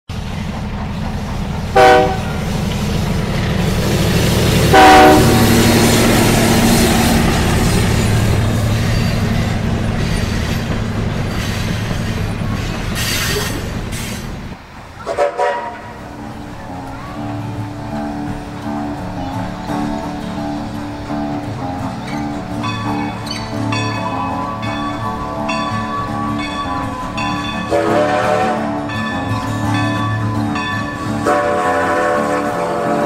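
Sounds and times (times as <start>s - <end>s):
locomotive rumbling: 0.1s - 33.0s
steam hissing: 0.2s - 15.5s
steam locomotive whistle blasts: 1.8s - 2.5s, 4.7s - 7.2s, 15.0s - 16.0s, 25.6s - 33.0s.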